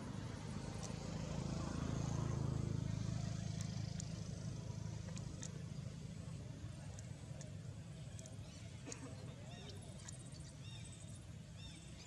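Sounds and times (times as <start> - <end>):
vehicle engine rumble: 0.0 - 12.0
faint high ticks: 0.7 - 1.0, 3.4 - 5.9, 6.9 - 9.1.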